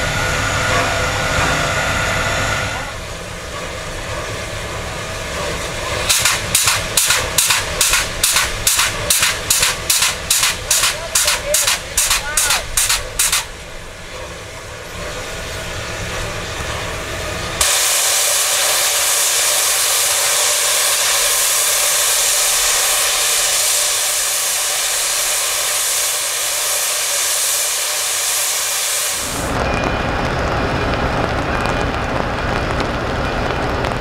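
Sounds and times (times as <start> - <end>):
loud steam hiss: 0.0 - 29.6
low rumble: 29.3 - 34.0.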